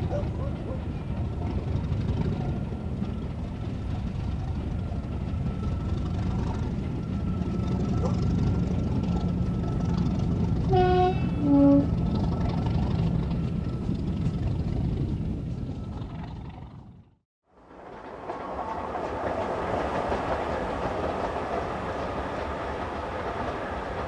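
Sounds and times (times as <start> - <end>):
train rumbling past: 0.0 - 24.0
two-tone train horn: 10.7 - 12.0.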